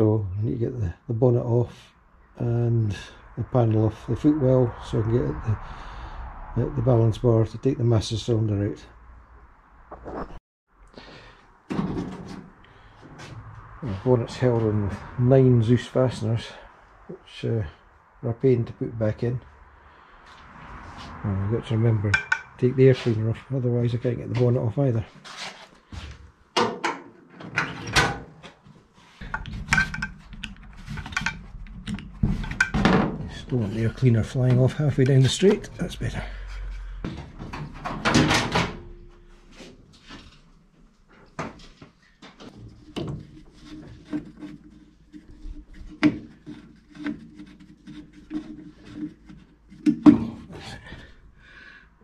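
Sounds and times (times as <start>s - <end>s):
cap scraping on threads: 22.2s - 22.6s, 29.2s - 32.8s, 42.6s - 50.7s
screwdriver clicks and metallic knocks: 22.2s - 22.6s, 29.2s - 32.8s.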